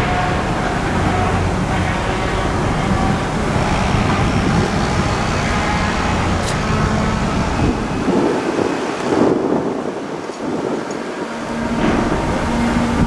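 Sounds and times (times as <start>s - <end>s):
diesel engine rumbling: 0.0s - 13.0s
street traffic noise: 0.0s - 13.0s.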